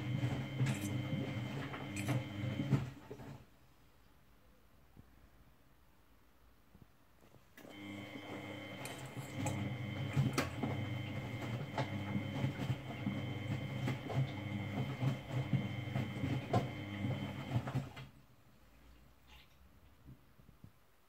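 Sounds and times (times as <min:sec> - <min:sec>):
washing machine motor hum: 0:00.0 - 0:03.5, 0:07.6 - 0:18.2.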